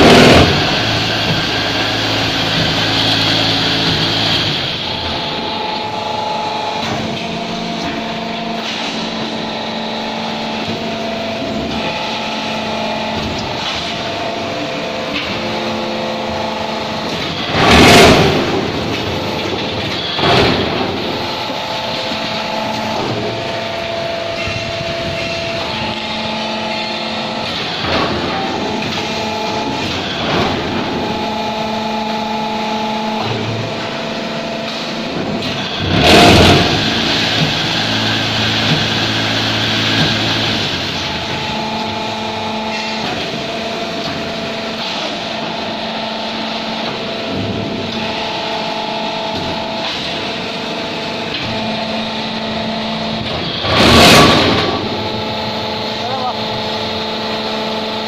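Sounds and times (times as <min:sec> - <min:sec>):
loud machine burst: 0:00.0 - 0:07.2, 0:11.7 - 0:33.9, 0:34.9 - 0:44.0, 0:51.3 - 0:58.0
hydraulic pump and motor hum: 0:00.0 - 0:58.0.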